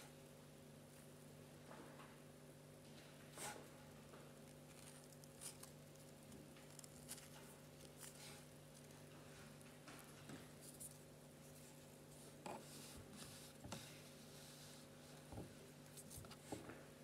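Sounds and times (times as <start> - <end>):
fingers rustling fabric: 3.4 - 16.8.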